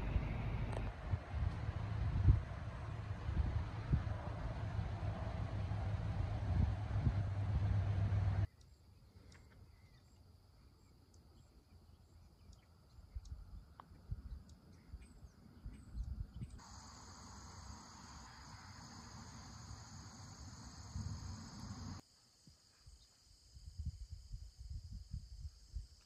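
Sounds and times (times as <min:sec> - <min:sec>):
wind rumbling on microphone: 0:00.0 - 0:08.5, 0:15.6 - 0:16.6, 0:23.6 - 0:26.0
crickets trilling: 0:16.6 - 0:26.0.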